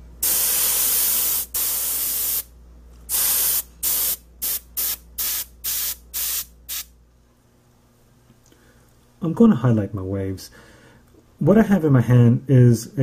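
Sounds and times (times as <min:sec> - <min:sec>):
airbrush spraying bursts: 0:00.2 - 0:02.5, 0:03.1 - 0:06.9.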